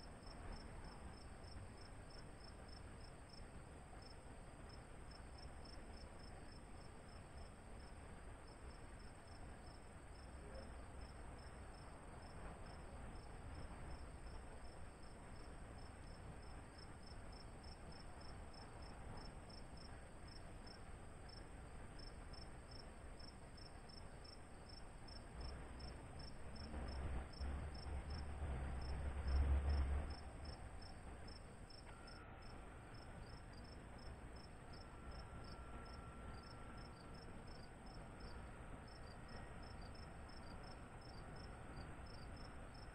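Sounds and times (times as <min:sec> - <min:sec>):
faint high hum: 0:00.0 - 0:42.9
insects chirping: 0:11.0 - 0:28.2, 0:29.7 - 0:42.9.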